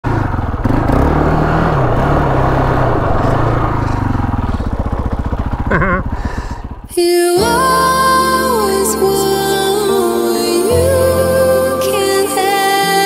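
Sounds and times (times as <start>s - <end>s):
quad bike engine running: 0.0s - 7.6s
gentle music: 7.0s - 13.0s.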